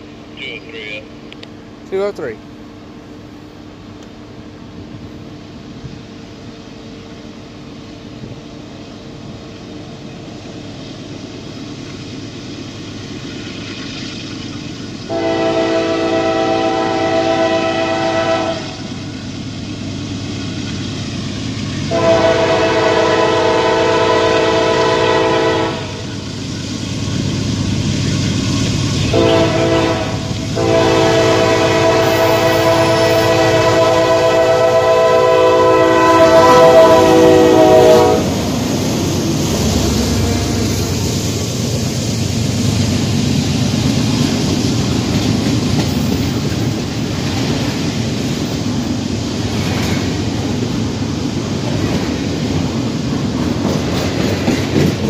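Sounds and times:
diesel locomotive rumble: 0.0s - 55.0s
train air horn blasts: 15.1s - 18.8s, 21.9s - 26.0s, 29.1s - 38.4s, 40.0s - 41.0s.

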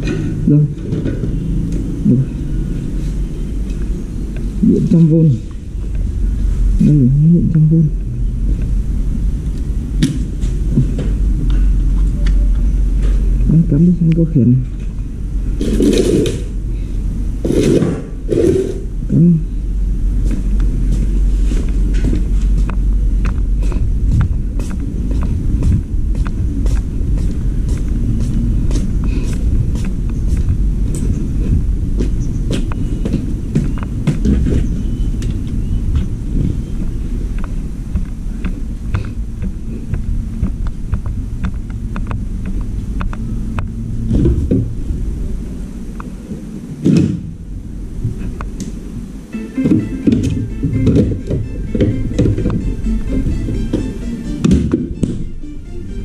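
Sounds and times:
low microphone rumble: 0.0s - 56.0s
short voice sounds: 0.4s - 0.9s, 2.0s - 2.4s, 6.8s - 8.0s, 19.1s - 19.5s
footsteps on concrete: 20.2s - 36.6s, 49.6s - 55.4s.

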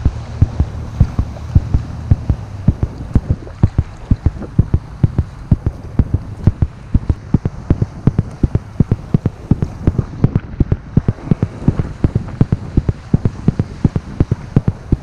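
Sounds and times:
rush of water: 0.0s - 15.0s
water slapping kayak hull: 0.0s - 15.0s.

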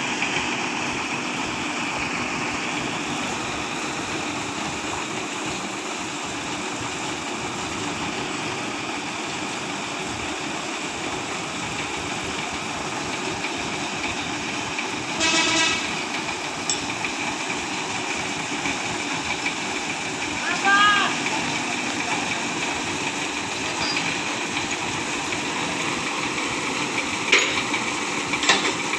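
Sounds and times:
truck engine idling: 0.0s - 28.9s
vehicle horn: 15.2s - 15.9s.

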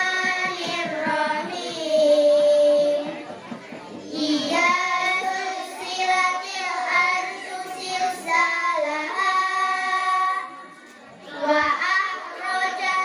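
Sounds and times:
girls chanting recitation through microphones: 0.0s - 13.0s.

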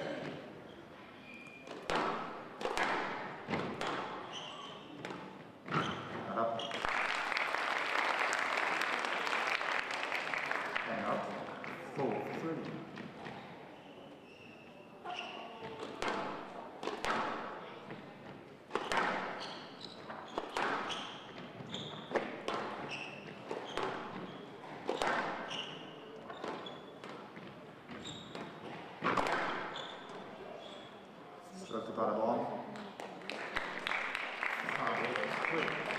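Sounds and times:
shoes squeaking on wooden floor: 0.2s - 2.1s, 3.5s - 6.8s, 12.6s - 16.0s, 18.7s - 32.0s
squash ball cracking off rackets: 1.7s - 4.3s, 15.7s - 17.6s, 18.7s - 27.2s, 27.9s - 30.2s.

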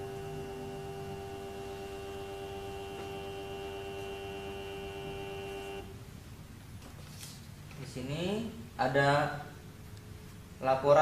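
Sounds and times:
thermal printer whirring: 0.0s - 6.0s.

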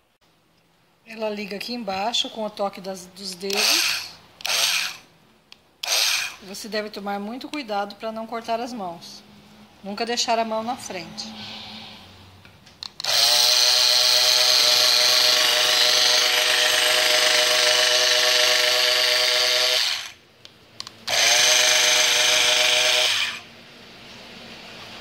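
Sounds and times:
electric cloth cutter whining: 3.4s - 5.1s, 5.8s - 6.5s, 13.0s - 20.2s, 21.1s - 23.5s.

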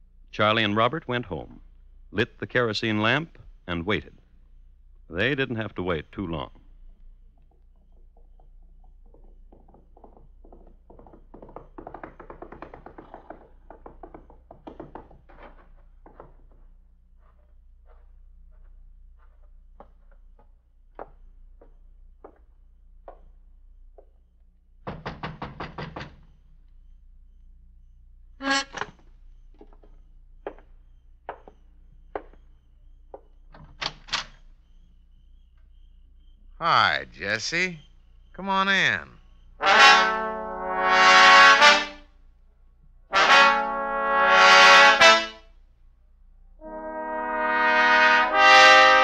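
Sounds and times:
slow footsteps: 6.5s - 24.6s
quick run of taps: 7.4s - 16.6s
old recording hum: 13.2s - 49.0s
knocks on a wooden door: 24.8s - 26.2s.

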